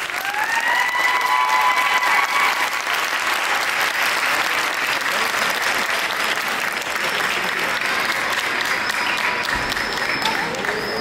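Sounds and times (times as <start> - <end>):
audience applauding: 0.0 - 11.0
high-pitched call from crowd: 8.3 - 11.0.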